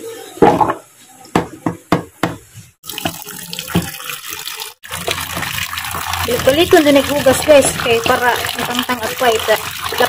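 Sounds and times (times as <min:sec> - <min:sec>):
running water splashing: 0:02.8 - 0:10.0.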